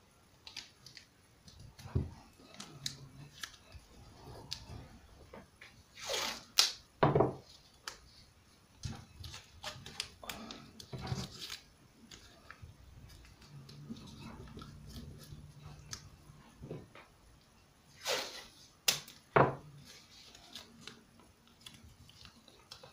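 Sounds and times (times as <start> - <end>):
hands tapping and rustling tape: 0.3 - 4.7, 6.4 - 17.5, 18.8 - 22.9
tape ripping: 6.0 - 6.8.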